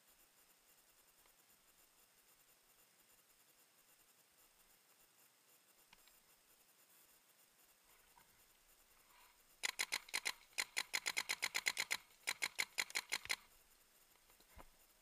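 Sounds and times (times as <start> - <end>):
paintball marker firing rapidly: 9.6 - 13.4.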